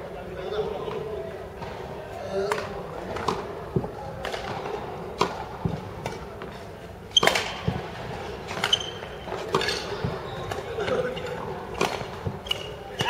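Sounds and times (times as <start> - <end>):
rackets hitting shuttlecock: 2.5 - 6.5, 7.2 - 13.0.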